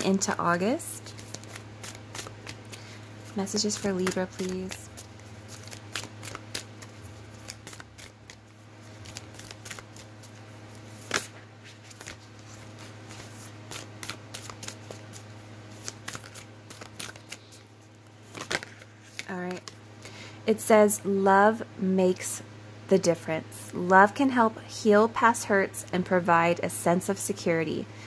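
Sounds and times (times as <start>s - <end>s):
steady low hum: 0.0s - 28.0s
cards being shuffled: 0.2s - 19.8s.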